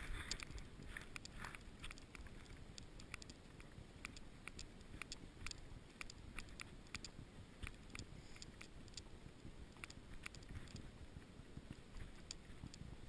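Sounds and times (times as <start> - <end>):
wind on microphone: 0.0 - 1.4.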